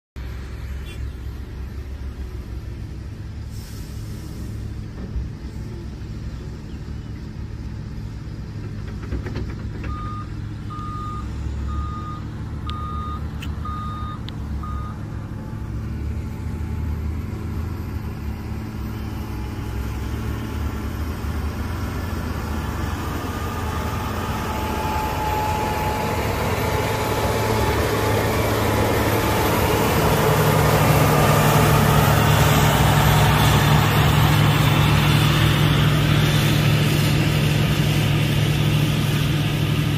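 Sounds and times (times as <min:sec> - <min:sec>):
diesel engine running: 0:00.2 - 0:39.9
reversing alarm beeping: 0:09.9 - 0:15.0, 0:23.4 - 0:26.6.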